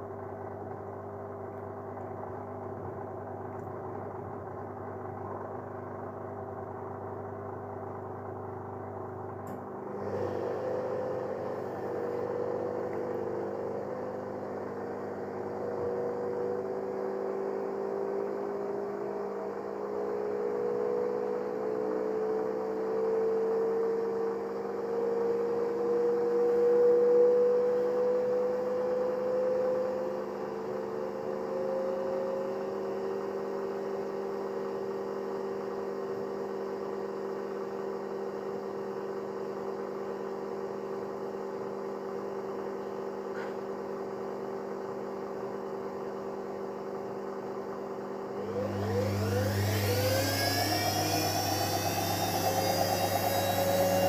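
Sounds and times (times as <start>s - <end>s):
washing machine spin cycle whine: 0.0s - 54.0s.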